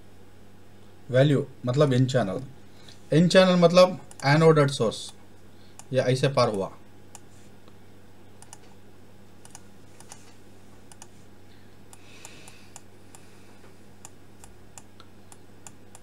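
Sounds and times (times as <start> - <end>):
low electrical hum: 0.0 - 16.0
computer mouse clicking: 4.1 - 4.3, 8.4 - 8.7, 9.4 - 11.2, 11.9 - 13.2, 14.0 - 16.0.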